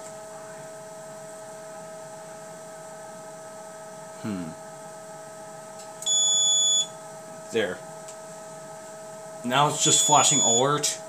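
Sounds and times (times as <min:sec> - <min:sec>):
fan hum: 0:00.0 - 0:11.0
smoke detector beep: 0:06.0 - 0:06.9, 0:09.8 - 0:10.7.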